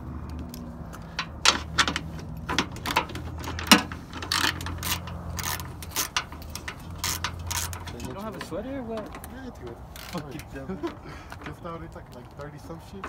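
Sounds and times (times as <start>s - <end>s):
ratchet wrench clicking: 0.3s - 8.4s, 9.9s - 10.5s.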